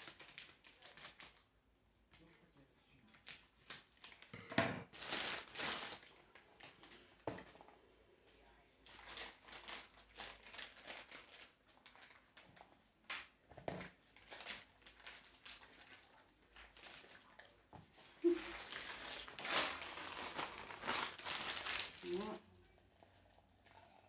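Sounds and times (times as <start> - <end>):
plastic bag rustling and crinkling: 0.0 - 1.5, 3.1 - 4.3, 4.9 - 7.7, 8.8 - 12.8, 13.5 - 22.5.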